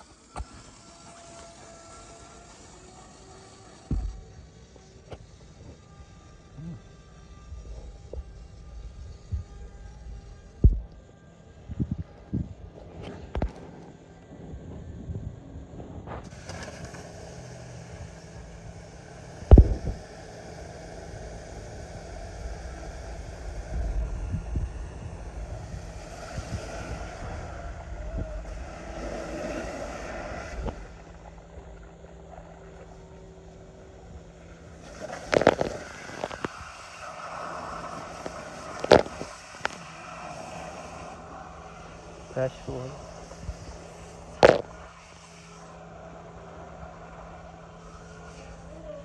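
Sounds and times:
water spraying from leaking pipe: 16.2s - 49.0s.

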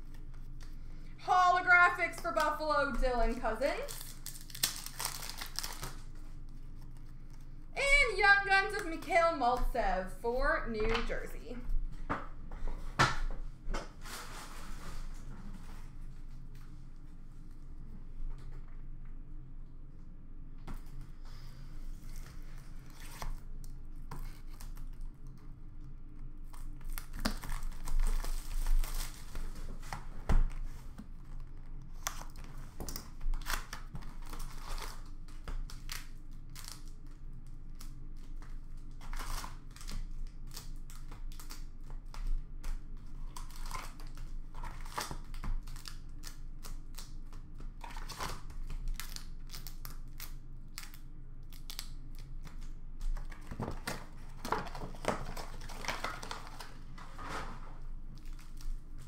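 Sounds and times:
foil packs crinkling: 2.2s - 7.5s, 26.5s - 29.9s, 31.9s - 41.8s, 47.8s - 59.0s.

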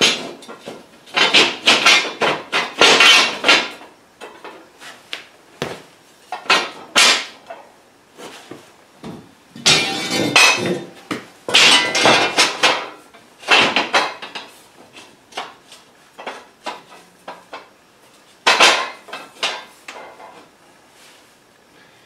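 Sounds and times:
steel plates clanking and scraping: 0.0s - 4.6s, 9.6s - 15.5s.

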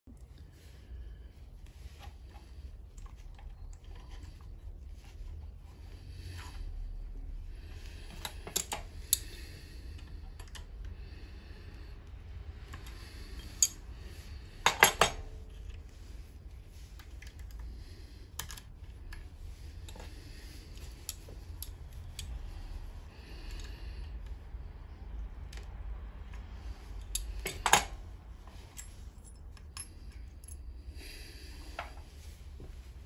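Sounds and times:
small metal parts clicking: 8.1s - 9.4s, 12.6s - 13.8s, 27.0s - 27.9s.

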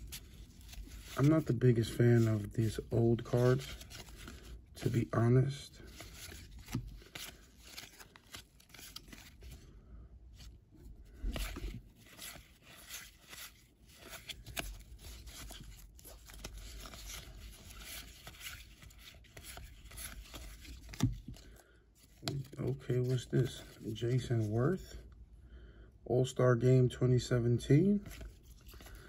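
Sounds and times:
cards sliding and rubbing: 0.0s - 5.0s, 5.8s - 9.6s, 11.1s - 21.4s, 28.0s - 29.0s.

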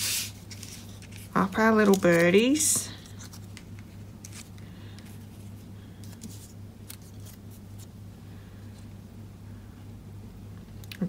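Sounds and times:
paper rustling: 0.0s - 7.9s
steady low hum: 0.0s - 11.0s.

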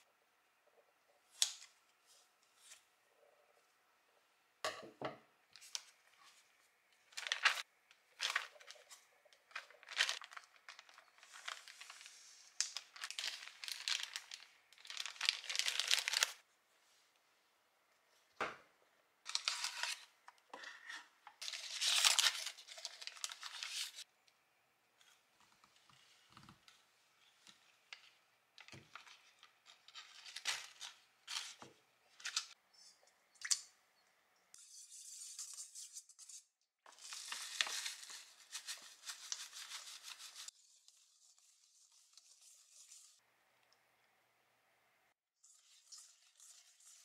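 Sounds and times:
foil paper wrapper crinkling: 7.1s - 16.4s, 21.4s - 24.0s, 36.9s - 40.5s.

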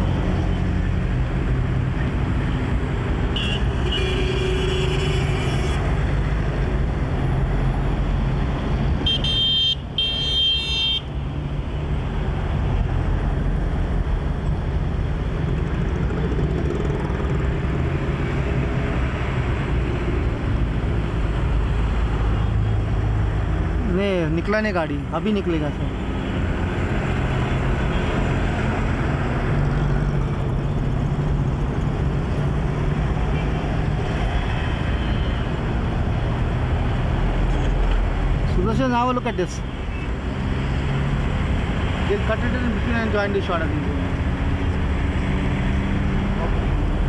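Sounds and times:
passing cars: 0.0s - 47.0s
car horns: 3.3s - 5.9s, 9.0s - 11.1s.

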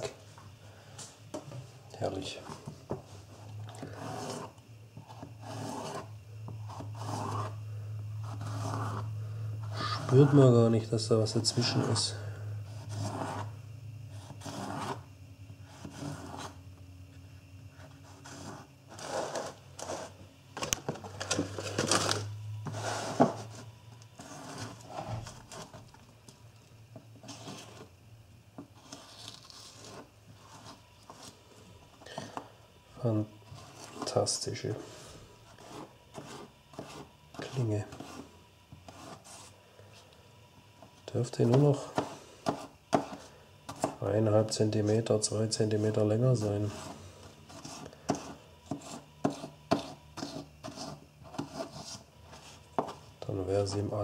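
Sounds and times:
steady low hum: 0.0s - 54.0s
knife slicing pepper on board: 47.5s - 52.0s.

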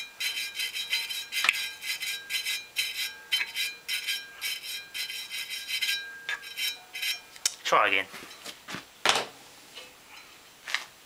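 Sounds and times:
wire brush scrubbing pipe: 0.0s - 7.4s.

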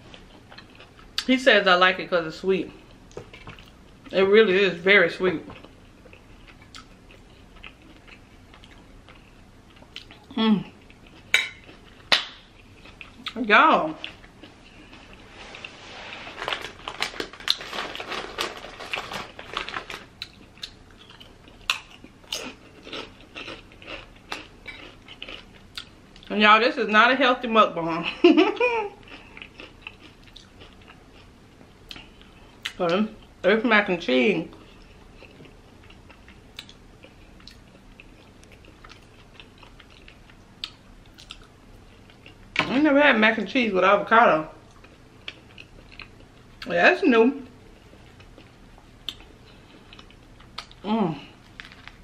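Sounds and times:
chewing crunchy chips: 5.6s - 15.2s, 16.4s - 26.3s, 29.0s - 33.4s, 34.5s - 42.6s, 44.6s - 46.7s, 47.8s - 52.0s.

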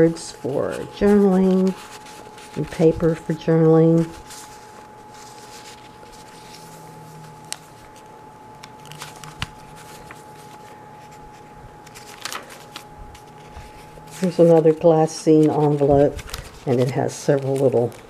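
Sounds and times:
faint steady hum: 0.0s - 18.0s
paper pages rustling: 0.0s - 18.0s
paper and card ticking together: 11.8s - 18.0s.

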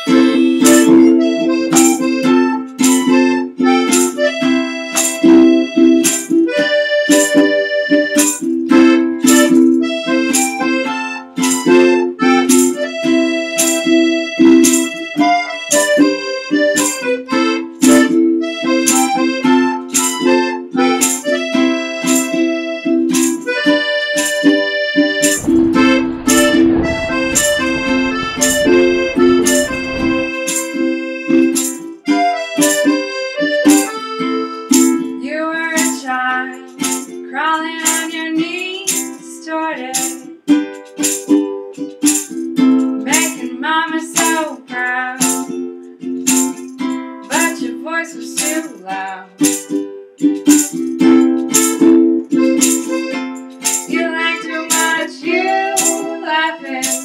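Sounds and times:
accordion chords: 0.0s - 37.2s, 49.1s - 57.0s
ukulele strumming: 0.0s - 57.0s
rushing noise: 25.1s - 31.7s.

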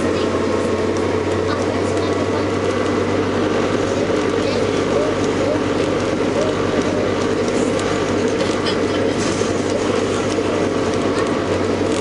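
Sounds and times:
bus engine drone: 0.0s - 12.0s
body rattles and clatter: 3.7s - 12.0s.

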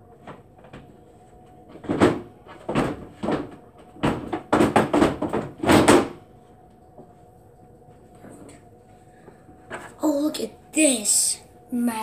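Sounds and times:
foosball table wooden knocks: 1.7s - 6.2s.

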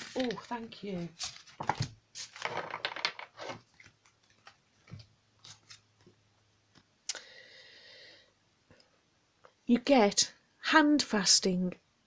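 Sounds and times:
card rustling: 0.0s - 2.8s.

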